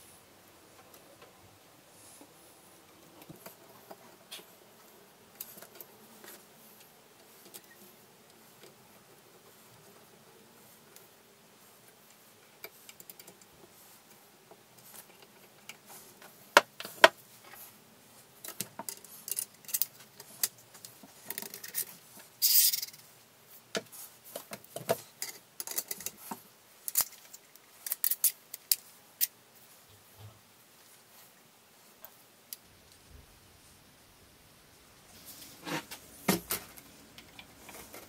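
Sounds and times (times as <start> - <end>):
metal parts clicking and knocking: 18.4 - 20.6, 21.2 - 23.0, 24.8 - 26.2, 26.9 - 29.3.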